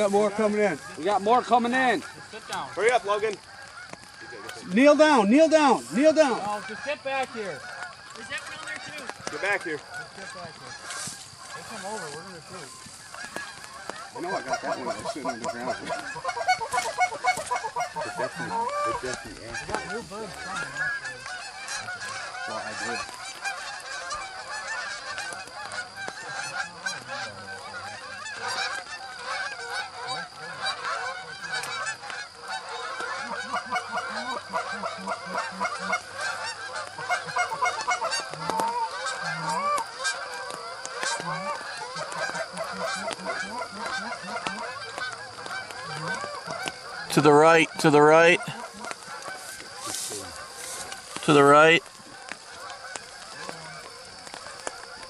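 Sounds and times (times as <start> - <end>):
geese honking: 0.0 - 55.0
loud close goose honks: 0.0 - 55.0.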